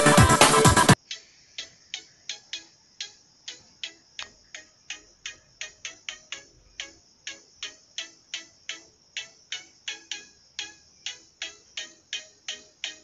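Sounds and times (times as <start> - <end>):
electronic music: 0.0 - 1.0
sharp high ticks: 0.9 - 13.0.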